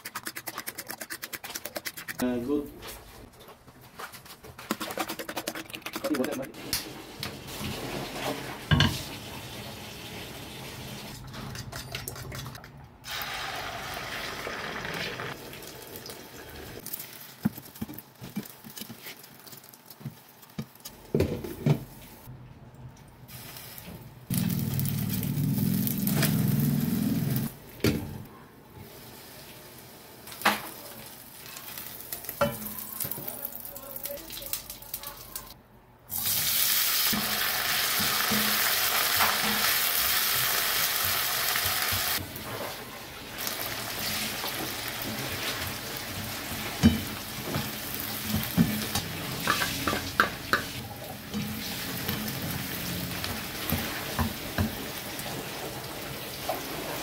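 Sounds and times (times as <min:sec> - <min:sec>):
eggs sizzling in a pan: 0:13.1 - 0:20.7, 0:36.1 - 0:57.0.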